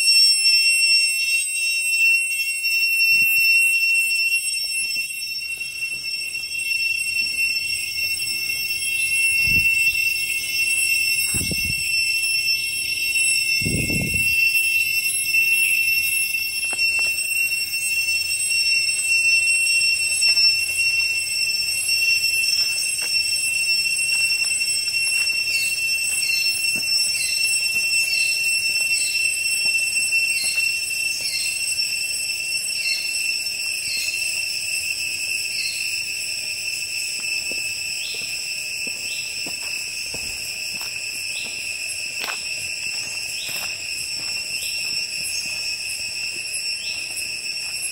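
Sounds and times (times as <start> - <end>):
insects droning: 0.0 - 47.9.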